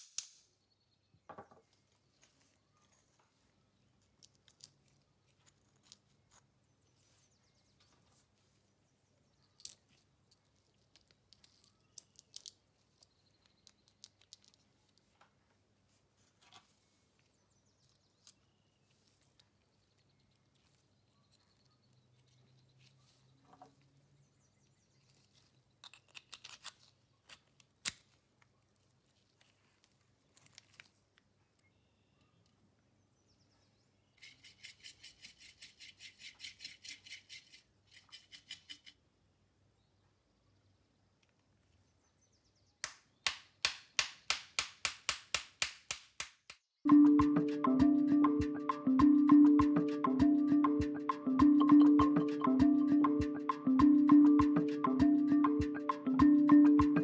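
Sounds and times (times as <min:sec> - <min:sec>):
rustling: 0:01.6 - 0:07.3, 0:25.0 - 0:31.2.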